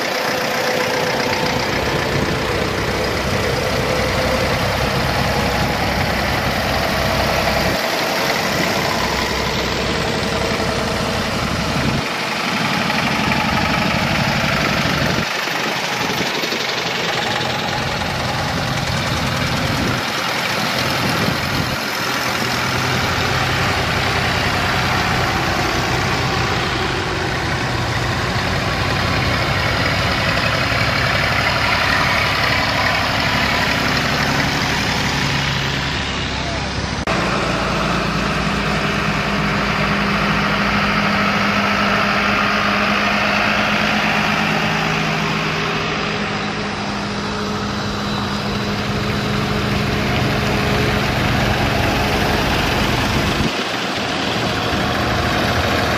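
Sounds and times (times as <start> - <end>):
tractor engines driving past: 0.0 - 55.9.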